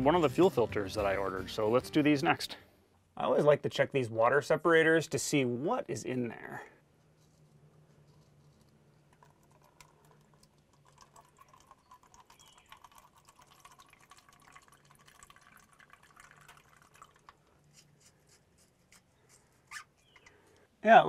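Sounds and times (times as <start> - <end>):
fuel dripping into plastic cup: 8.5 - 20.7.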